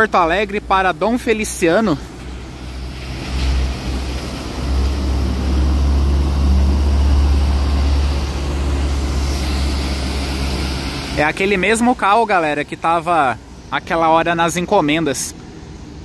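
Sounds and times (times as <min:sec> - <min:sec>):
tyres swishing on wet pavement: 0:00.0 - 0:15.5
coach diesel engine drone: 0:00.0 - 0:16.0.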